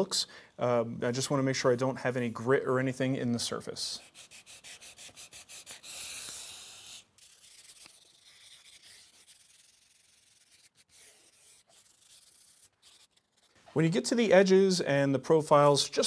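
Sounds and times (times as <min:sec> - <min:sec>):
sandpaper sanding wood: 0:03.8 - 0:13.6.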